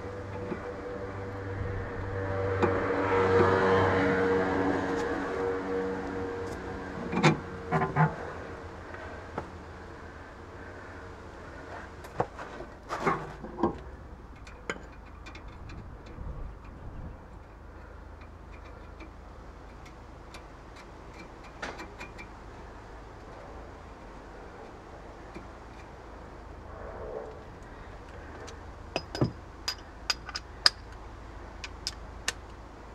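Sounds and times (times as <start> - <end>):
low steady hum: 0.0 - 32.9
metallic clicks of hand tools: 28.4 - 31.0, 31.6 - 32.6.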